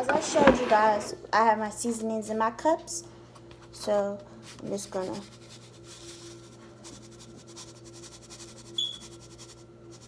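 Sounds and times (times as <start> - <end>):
steady low hum: 0.0 - 10.0
short high squeak: 8.8 - 9.0.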